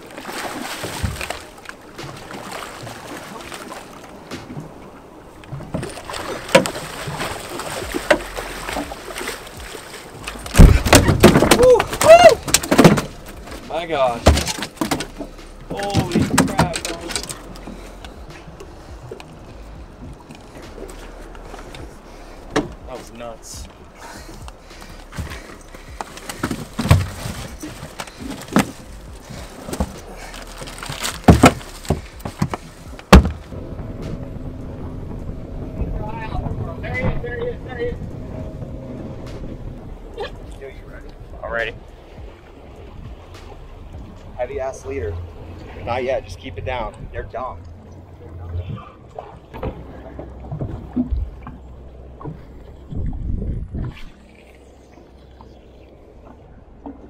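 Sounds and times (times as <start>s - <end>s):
sharp splashes or knocks: 0.0s - 23.7s, 24.4s - 35.4s
water splashing at boat hull: 0.0s - 57.0s
knocks and thuds on fish box: 10.4s - 13.2s, 14.2s - 16.8s, 25.1s - 28.8s, 30.7s - 33.5s.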